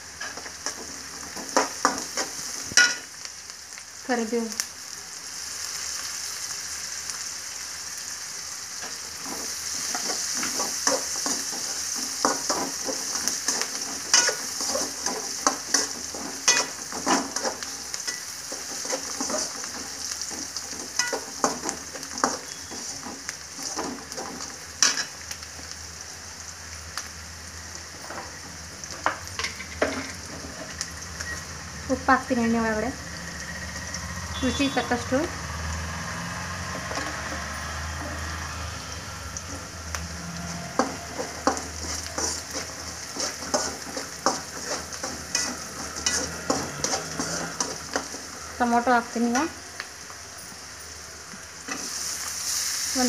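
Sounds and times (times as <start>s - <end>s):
food sizzling in hot oil: 0.0s - 53.0s
spoon scraping and knocking pan: 0.2s - 3.0s, 8.8s - 25.2s, 28.0s - 30.8s, 40.5s - 48.7s.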